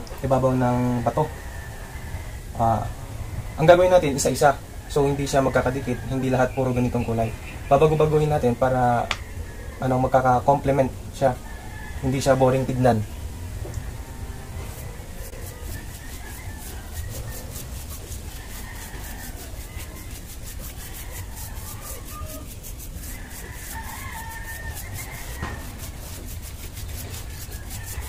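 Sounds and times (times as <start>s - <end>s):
chickens calling: 0.0s - 28.0s
paintbrush scrubbing on cement wall: 12.0s - 13.0s, 13.8s - 28.0s.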